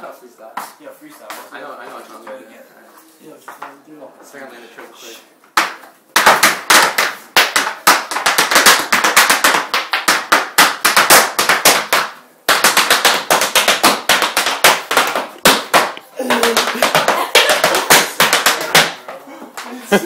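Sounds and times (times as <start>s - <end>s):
step dancing on hardwood floor: 5.5s - 19.7s.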